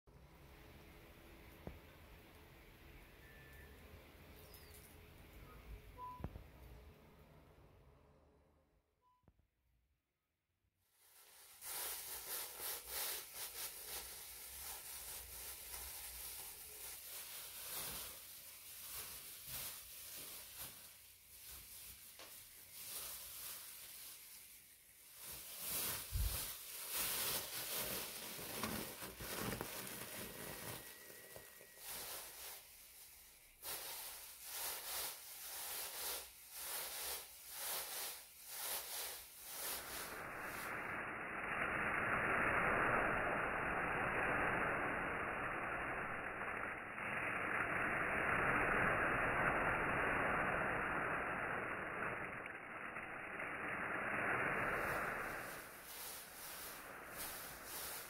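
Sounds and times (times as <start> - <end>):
plastic bag crinkling: 11.0 - 40.6, 54.7 - 58.0.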